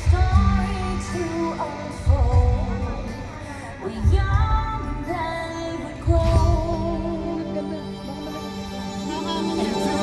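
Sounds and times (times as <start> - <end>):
person singing: 0.0 - 8.0.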